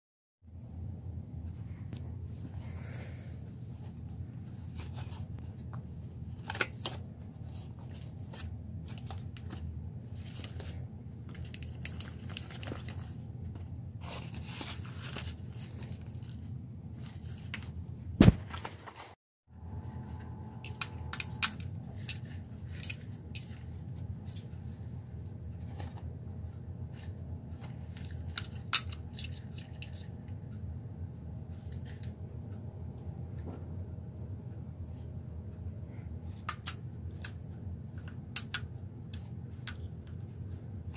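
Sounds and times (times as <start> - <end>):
steady low hum: 0.4 - 40.9
paper and card rustling: 3.7 - 19.2.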